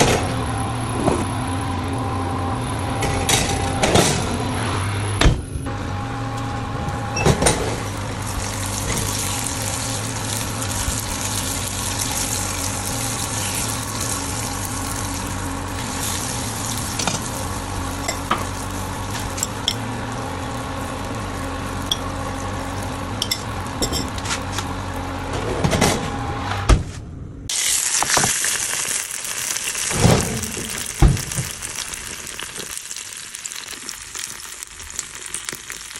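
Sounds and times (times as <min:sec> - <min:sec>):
low hum: 0:00.0 - 0:27.5
chicken sizzling in fat: 0:06.3 - 0:25.3, 0:27.5 - 0:35.9.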